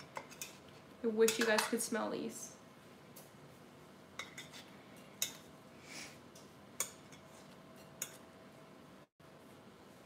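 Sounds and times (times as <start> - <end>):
metal utensil clinking on bakeware: 0.0 - 2.0, 4.2 - 5.5, 6.8 - 8.3.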